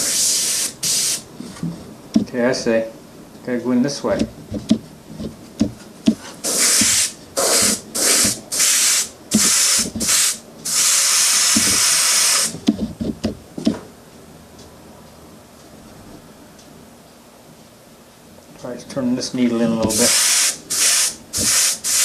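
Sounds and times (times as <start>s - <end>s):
airbrush hissing bursts: 0.0s - 1.3s, 6.4s - 12.6s, 19.8s - 22.0s.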